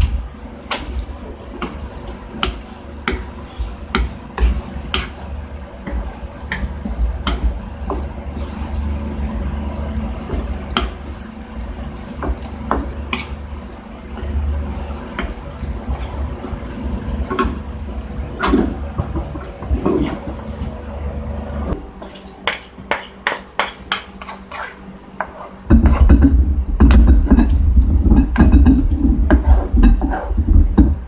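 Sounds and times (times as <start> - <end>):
spatula against pan: 0.6 - 8.8, 12.2 - 13.4, 22.0 - 26.2
stew bubbling and popping: 25.7 - 31.0.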